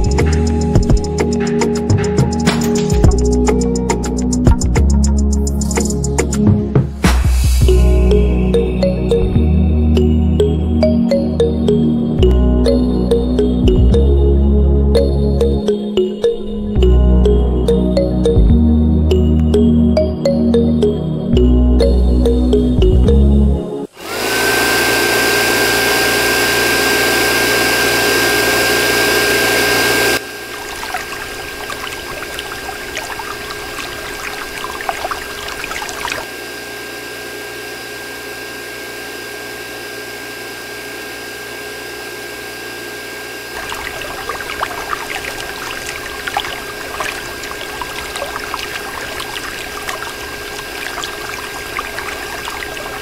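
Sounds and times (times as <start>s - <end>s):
small pump motor whine: 23.9s - 53.0s
water pouring and trickling: 29.6s - 36.4s, 43.5s - 53.0s.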